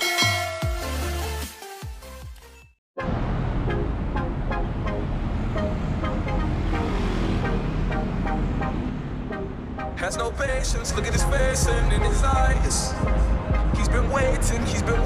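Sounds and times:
cars driving past: 3.0 - 11.6.

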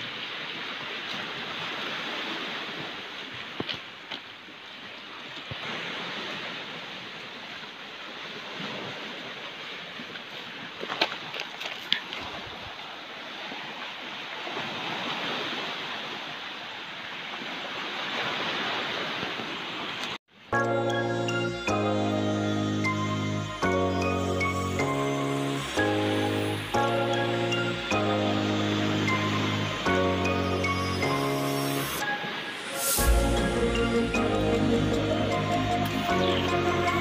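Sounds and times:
waves washing onto stony beach: 0.0 - 20.2.

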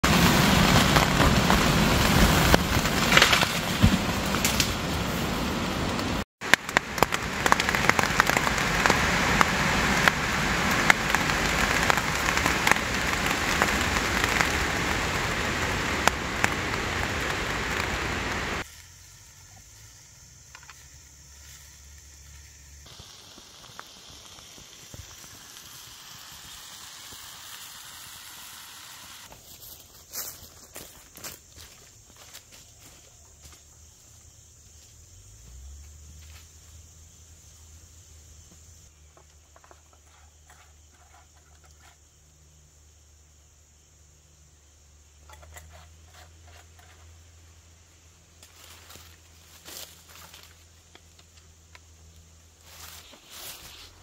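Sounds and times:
heavy rain with wind: 0.0 - 18.6.

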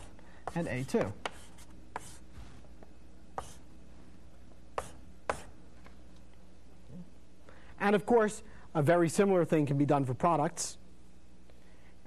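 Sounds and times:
chalk tapping on blackboard: 0.0 - 2.2, 3.4 - 3.6, 4.8 - 5.5
low steady hum: 0.0 - 12.0.

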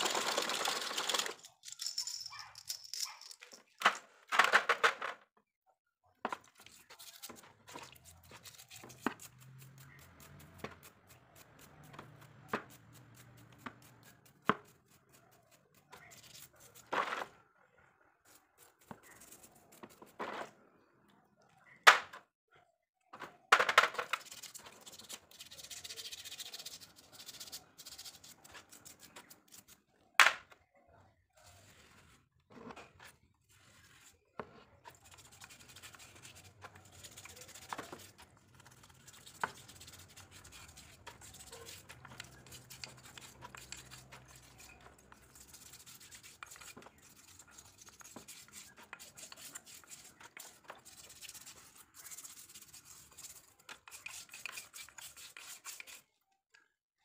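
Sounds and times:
brush scrubbing metal parts: 0.0 - 3.6, 6.5 - 17.2, 23.9 - 29.8, 33.1 - 56.0.

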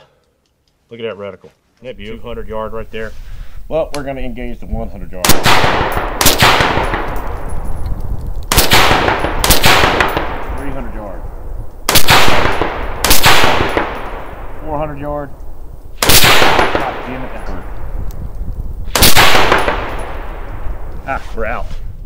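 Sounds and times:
rifle shots with ringing echo: 5.2 - 7.6, 8.5 - 14.7, 16.0 - 17.8, 18.9 - 20.8.

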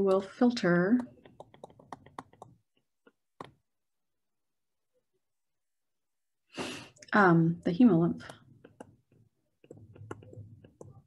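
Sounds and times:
stylus tapping on touchscreen: 0.9 - 2.8, 3.4 - 3.6, 8.2 - 11.0.

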